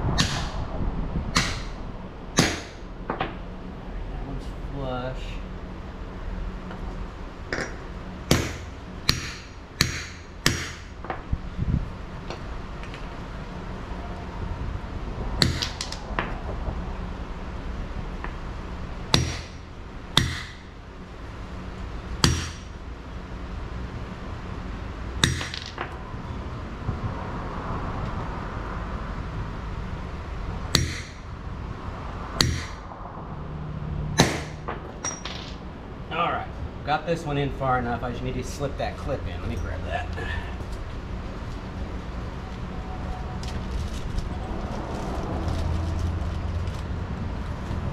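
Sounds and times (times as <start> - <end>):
hammer striking metal: 1.3 - 1.7, 2.4 - 2.8, 7.5 - 10.9, 32.4 - 32.8.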